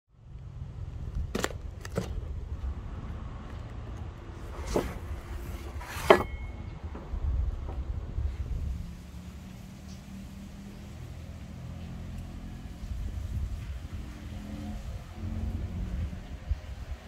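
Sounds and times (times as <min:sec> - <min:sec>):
low outdoor rumble: 0:00.1 - 0:17.0.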